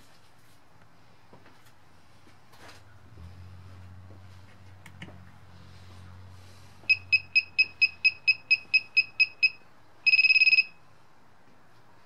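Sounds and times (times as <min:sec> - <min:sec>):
short high beeps: 0:06.9 - 0:10.8.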